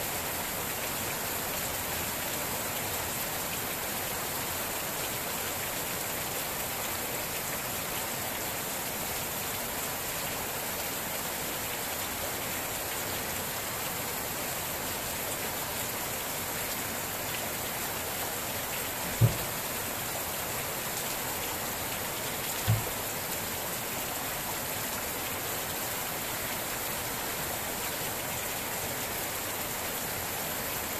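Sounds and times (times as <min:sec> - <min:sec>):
steady rain falling: 0:00.0 - 0:30.9
dull thumps: 0:19.1 - 0:19.5, 0:22.6 - 0:22.9.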